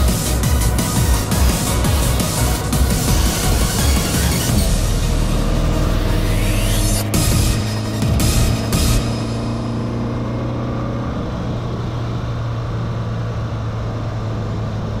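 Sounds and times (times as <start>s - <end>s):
music: 0.0s - 10.1s
engine and tyres drone in car: 0.0s - 15.0s.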